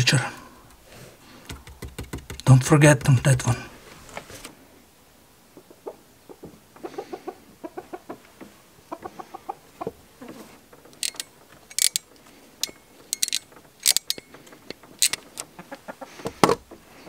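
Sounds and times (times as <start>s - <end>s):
sharp clicks: 1.4s - 3.4s, 10.8s - 15.6s
chickens clucking: 5.4s - 17.0s.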